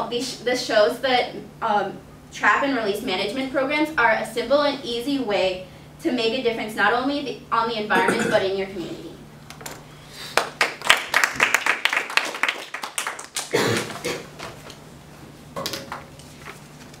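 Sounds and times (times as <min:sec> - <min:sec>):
people clapping: 0:10.3 - 0:14.5.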